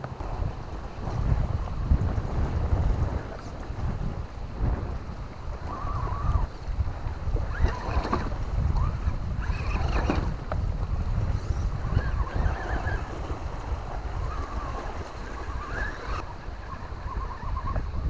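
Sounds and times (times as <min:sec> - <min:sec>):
wind buffeting microphone: 0:00.0 - 0:18.0
toy car electric motor whine: 0:07.5 - 0:10.4, 0:14.4 - 0:16.2.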